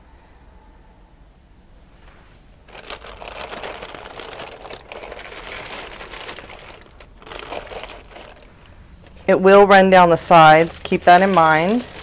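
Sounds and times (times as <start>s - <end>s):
plastic sheeting crinkling: 2.6s - 12.0s.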